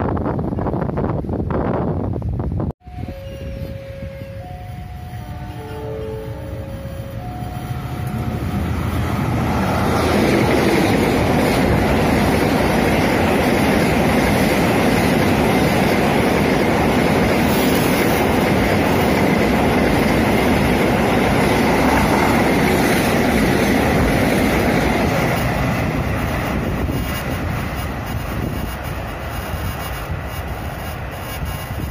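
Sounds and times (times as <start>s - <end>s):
train wheels running over rails: 7.2s - 31.9s.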